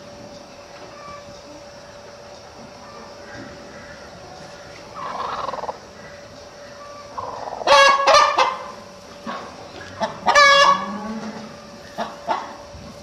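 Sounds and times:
hen squawking: 4.6 - 6.1.

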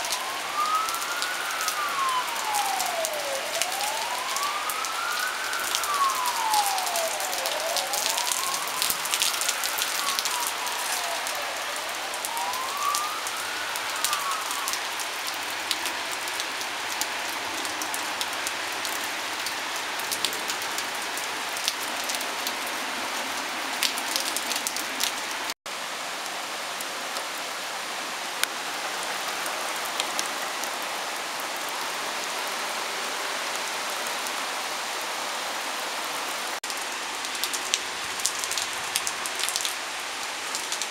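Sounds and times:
close raindrops ticking: 0.0 - 25.6, 36.6 - 40.9
emergency vehicle siren wailing: 0.0 - 25.6, 37.3 - 40.9
torrential rain: 0.0 - 40.9.

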